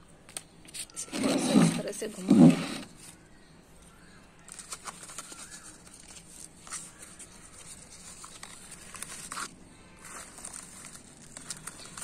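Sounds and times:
dry soil scratching by hand: 1.0s - 3.0s.

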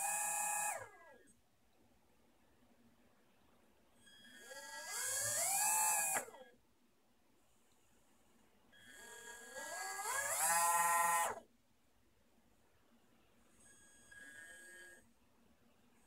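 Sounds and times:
small electric motors whining: 0.0s - 1.2s, 4.0s - 6.4s, 8.8s - 11.4s.

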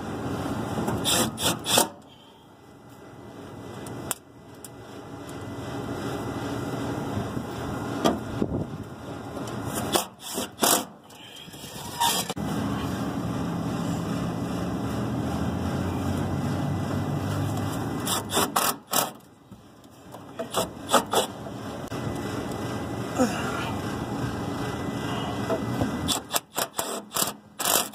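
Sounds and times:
steady low rumble: 2.6s - 9.8s, 21.4s - 26.2s
hand tool clicking on sheet metal: 26.1s - 27.9s.

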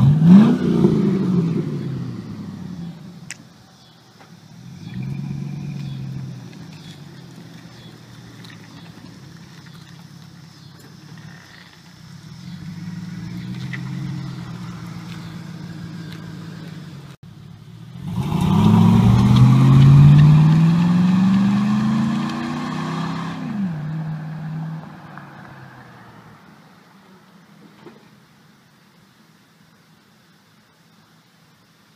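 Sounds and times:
truck engine accelerating: 0.0s - 3.4s, 4.2s - 26.1s.

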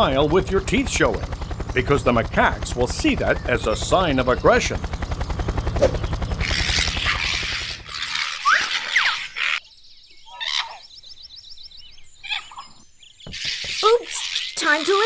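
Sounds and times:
fast even rattle: 0.0s - 9.3s.

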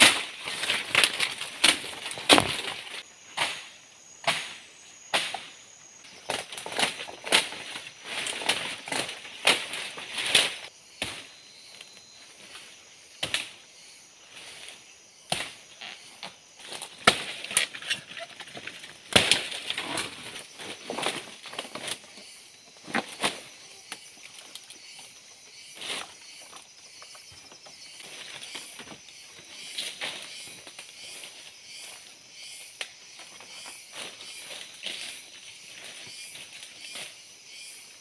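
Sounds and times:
footsteps on dry sticks: 0.0s - 3.0s, 6.1s - 10.7s
dry fronds and sticks rustling: 0.0s - 3.6s, 5.2s - 13.6s, 14.2s - 32.2s, 32.8s - 37.3s.

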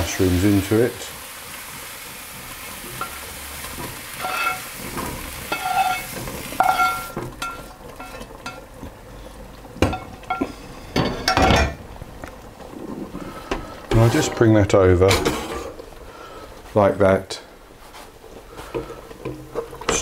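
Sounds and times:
mushrooms sizzling in a pan: 0.0s - 20.0s
pan and spatula clattering: 2.7s - 8.8s, 9.8s - 11.8s, 13.4s - 15.8s, 18.7s - 20.0s
spatula scraping a pan: 2.9s - 8.6s, 13.9s - 14.5s.

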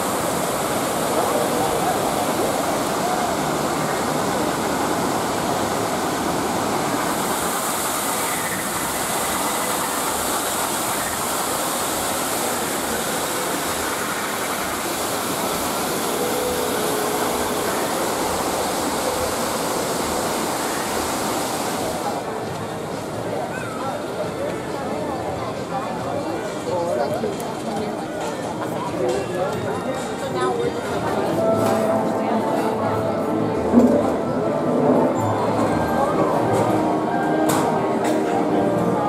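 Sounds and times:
waterfall rushing over rocks: 0.0s - 23.2s.

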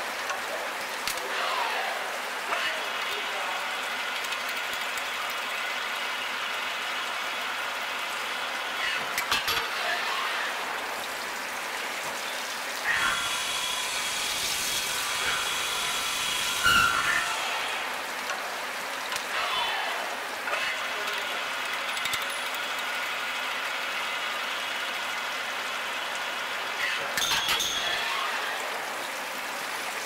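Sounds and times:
coolant spraying and splashing: 0.0s - 9.8s
drilling machine running: 12.8s - 18.2s.

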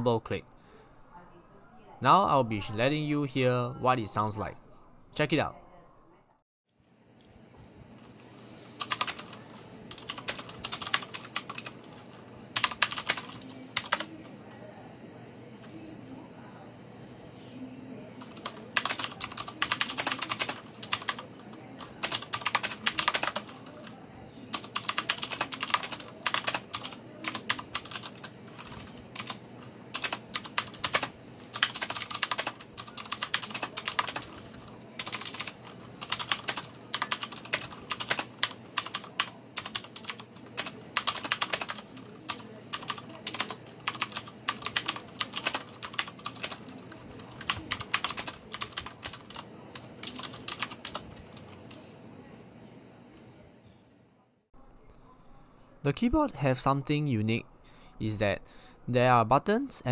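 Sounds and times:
mechanical keyboard typing: 8.8s - 11.9s, 12.6s - 14.1s, 18.2s - 51.8s.

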